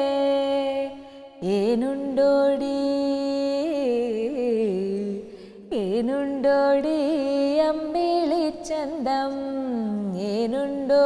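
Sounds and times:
woman singing unaccompanied: 0.0 - 11.0
woman taking a breath: 5.3 - 5.6.

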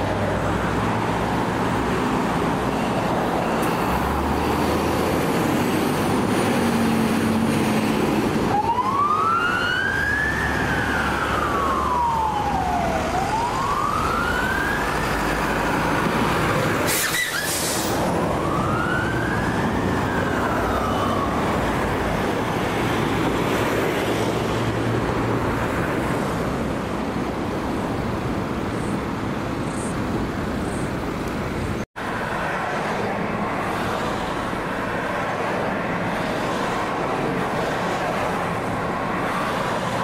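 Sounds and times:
road traffic noise: 0.0 - 40.0
fire truck siren wailing: 7.8 - 23.6.

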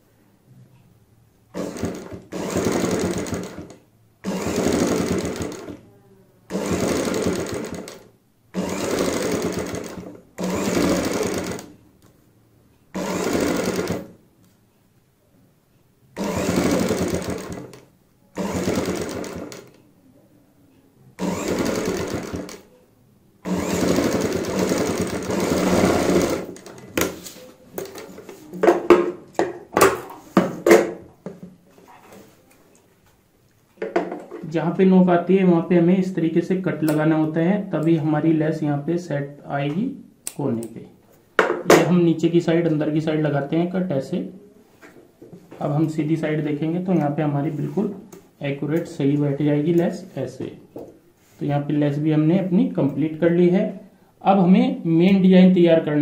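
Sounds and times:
sewing machine stitching: 1.5 - 5.8, 6.5 - 11.8, 12.9 - 14.2, 16.2 - 19.8, 21.2 - 22.7, 23.4 - 27.1.

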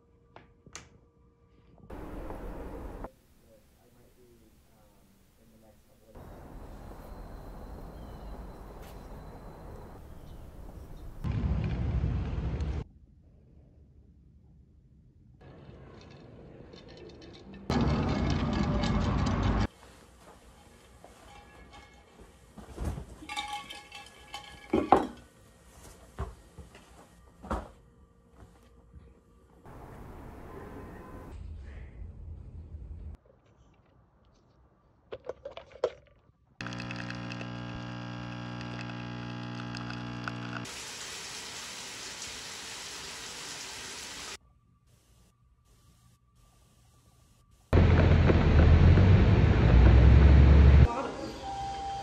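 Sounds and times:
coffee machine humming: 36.6 - 41.4
shower running: 40.7 - 44.4.

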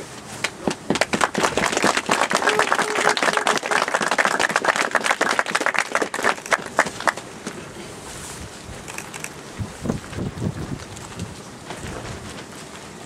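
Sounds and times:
crowd applauding: 0.4 - 7.3.

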